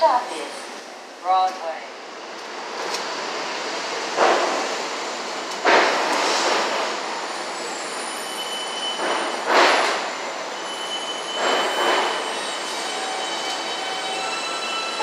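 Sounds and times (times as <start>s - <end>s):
subway train rolling rumble: 0.0s - 15.0s
high wheel squeal: 7.3s - 9.5s, 10.5s - 15.0s.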